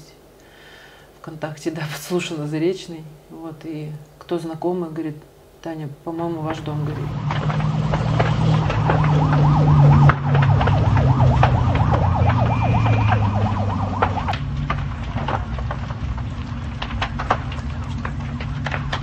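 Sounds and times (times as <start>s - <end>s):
sharp cracks and pops: 6.5s - 19.0s
loud low rumble: 6.8s - 16.8s
fire engine siren yelping: 7.0s - 14.5s.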